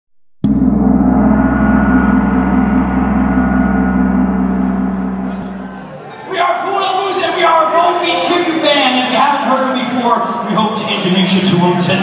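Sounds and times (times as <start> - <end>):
deep ringing tone: 0.4 - 6.1.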